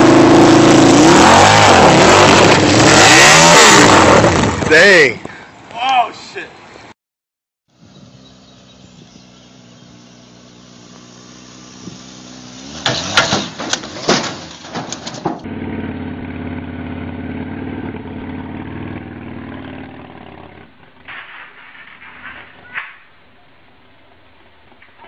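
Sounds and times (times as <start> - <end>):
motorcycle engine running: 7.7 - 12.6, 15.4 - 21.0
motorcycle engine idling: 7.8 - 12.3
loud bangs and clatter: 12.8 - 15.5, 21.0 - 23.2.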